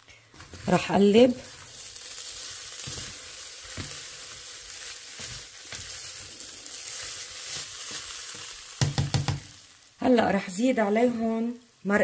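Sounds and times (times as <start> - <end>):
rice and meat sizzling in a pot: 0.0 - 12.0
spatula scraping and knocking pot: 7.5 - 9.5.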